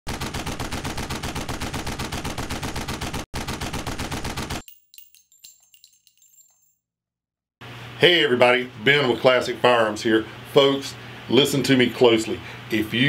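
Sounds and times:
rapid automatic gunfire: 0.1 - 4.6
faint metallic pings and clinks: 4.6 - 6.8.

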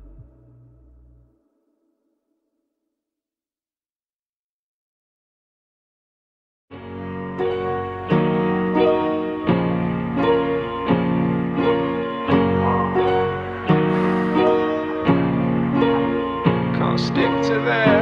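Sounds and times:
piano chords: 0.0 - 1.6, 6.7 - 18.0.

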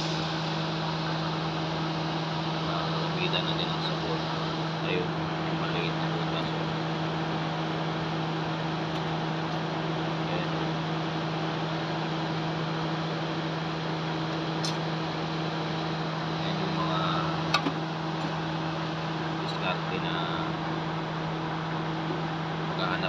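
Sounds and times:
car air conditioning hum: 0.0 - 23.0
sharp click: 14.6 - 14.8.

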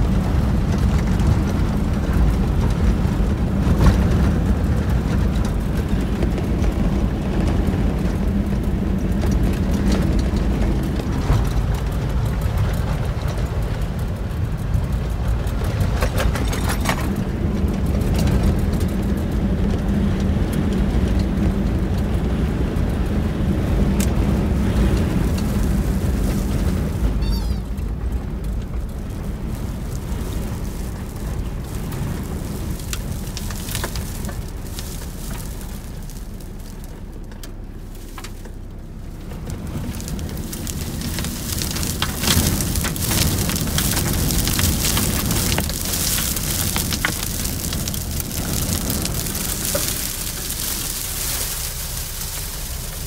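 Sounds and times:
heavy low rumble: 0.0 - 53.0
wind buffeting car: 0.0 - 53.0
sand pelting car windscreen: 23.8 - 27.8, 28.7 - 53.0.

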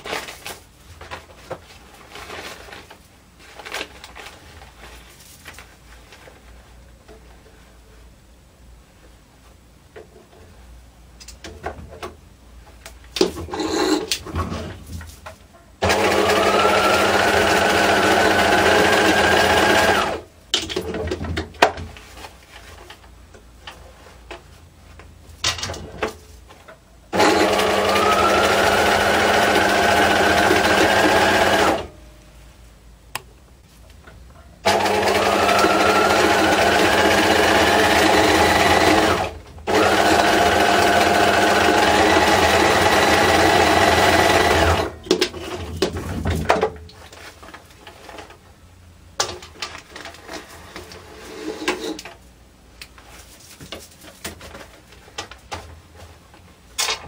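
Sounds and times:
sewing machine stitching paper: 15.8 - 20.2, 27.1 - 31.9, 34.6 - 45.6.

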